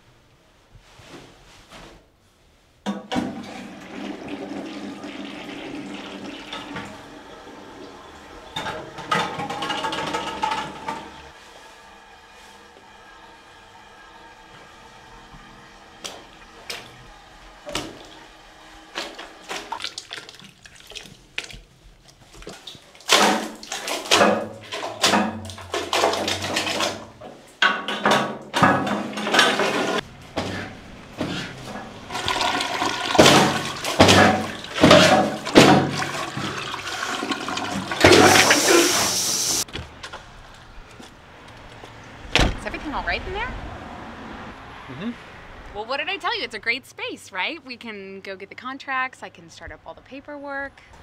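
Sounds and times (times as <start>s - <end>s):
toilet flushing: 2.9s - 21.6s, 22.4s - 39.7s
water splashing in toilet: 2.9s - 39.7s.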